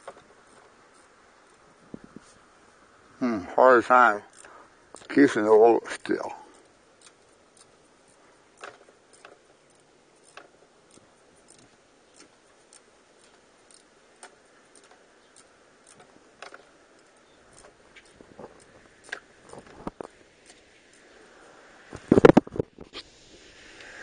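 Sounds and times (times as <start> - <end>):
sharp metal clicks: 4.1 - 21.1
ratcheting wrench clicking: 4.2 - 5.2, 6.5 - 21.0.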